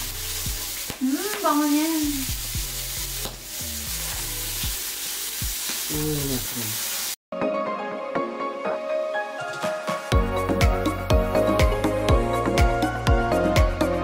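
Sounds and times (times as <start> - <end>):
meat sizzling in oil: 0.0 - 7.2
background music: 7.3 - 14.0.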